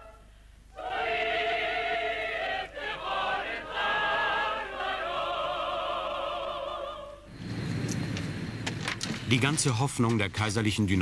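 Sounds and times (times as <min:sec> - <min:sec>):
operatic choral singing: 0:00.0 - 0:07.4.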